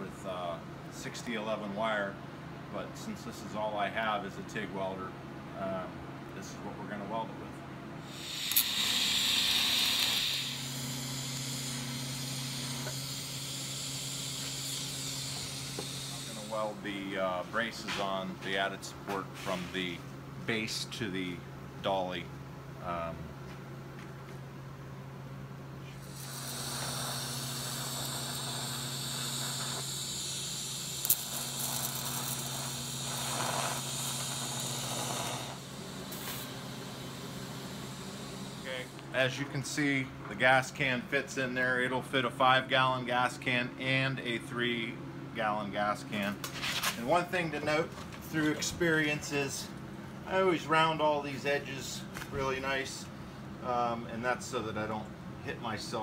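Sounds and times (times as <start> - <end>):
low steady hum: 0.0 - 56.0
welding arc hissing: 8.0 - 18.2, 25.9 - 39.7.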